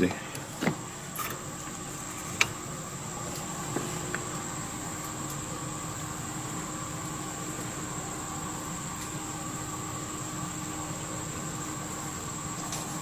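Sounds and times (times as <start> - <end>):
steady hum with high whine: 0.0 - 13.0.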